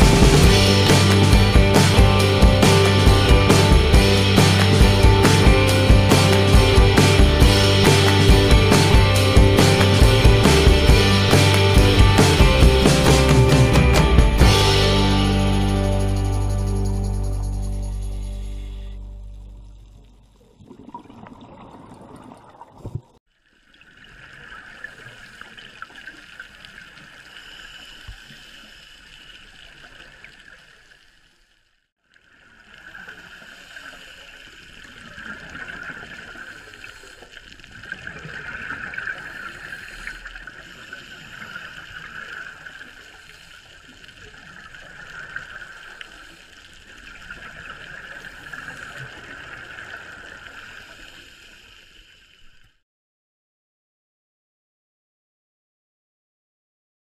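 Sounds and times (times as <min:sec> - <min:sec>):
muffled underwater hiss: 0:24.4 - 0:31.2, 0:32.6 - 0:52.7.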